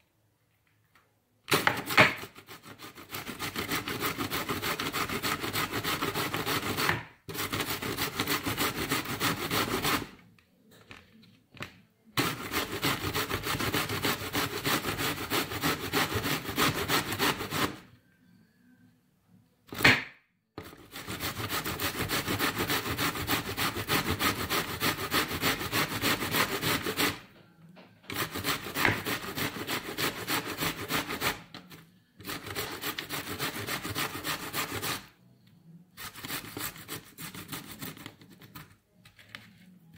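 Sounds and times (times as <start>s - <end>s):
grater rasping: 1.5s - 10.2s, 12.2s - 17.8s, 20.6s - 27.3s, 28.1s - 31.5s, 32.2s - 35.1s, 36.0s - 38.1s.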